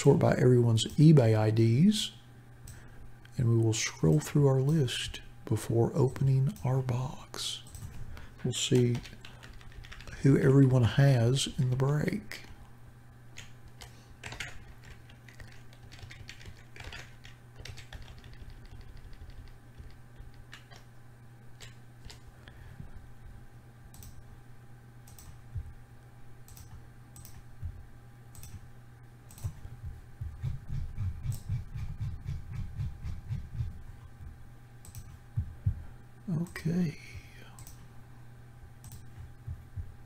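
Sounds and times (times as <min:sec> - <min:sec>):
electrical hum: 0:00.0 - 0:40.0
keyboard and mouse clicking: 0:13.4 - 0:20.9, 0:23.9 - 0:24.2, 0:25.1 - 0:25.4, 0:26.5 - 0:27.4, 0:28.3 - 0:28.6, 0:30.8 - 0:32.4, 0:34.8 - 0:35.2, 0:37.6 - 0:37.8
soft low thumps: 0:25.5 - 0:25.8, 0:27.6 - 0:27.9, 0:29.4 - 0:34.5, 0:35.3 - 0:36.0, 0:39.1 - 0:40.0.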